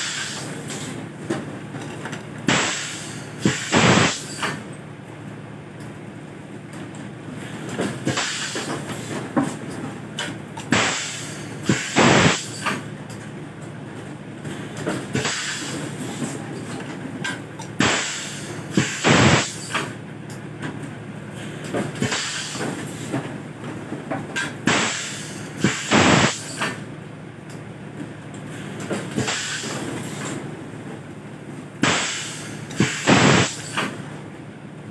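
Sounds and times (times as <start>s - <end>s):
compressed air bursts: 0.0s - 0.6s, 2.5s - 4.6s, 8.0s - 9.2s, 10.7s - 12.8s, 15.2s - 16.4s, 17.8s - 19.9s, 22.0s - 23.1s, 24.6s - 26.8s, 28.5s - 30.3s, 31.8s - 34.0s.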